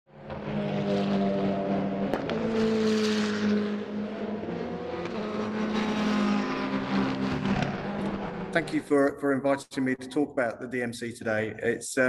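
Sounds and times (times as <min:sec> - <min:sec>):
motor engine passing: 0:00.3 - 0:08.6.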